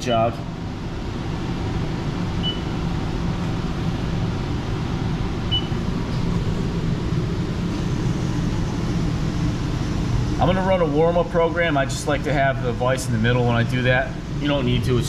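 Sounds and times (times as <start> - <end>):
milling machine drone: 0.0 - 15.0
short high beeps: 2.4 - 2.8.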